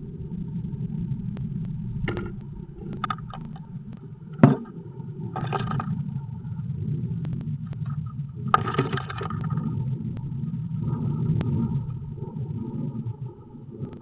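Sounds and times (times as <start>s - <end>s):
steady low rumble: 0.0s - 14.0s.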